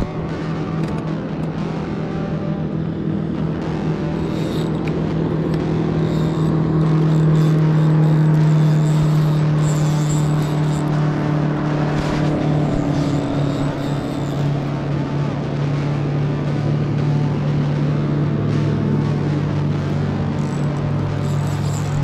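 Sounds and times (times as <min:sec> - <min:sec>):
electric trolling motor humming: 0:00.0 - 0:22.0.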